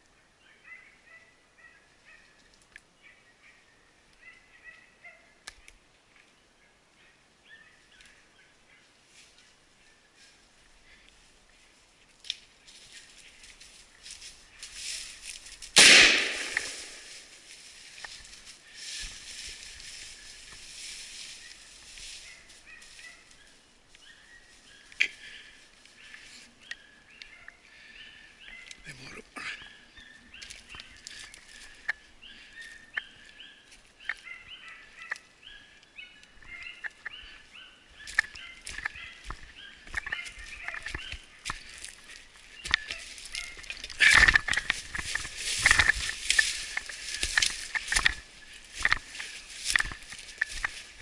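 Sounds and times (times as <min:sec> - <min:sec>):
footsteps on twigs and stones: 0:08.8 - 0:51.0
shotgun shot: 0:15.8 - 0:17.1
dogs yelping and baying: 0:36.4 - 0:41.3, 0:42.8 - 0:44.4.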